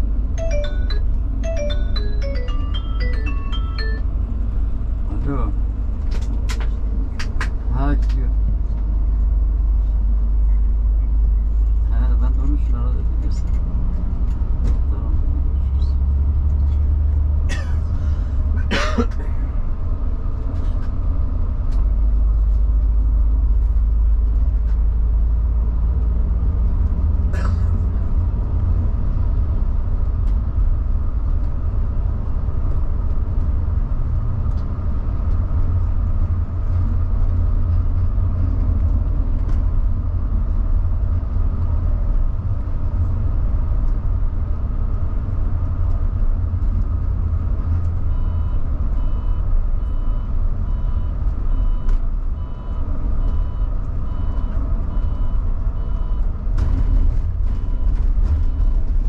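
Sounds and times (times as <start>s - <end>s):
coach engine drone: 0.0s - 59.0s
road rumble: 0.0s - 59.0s.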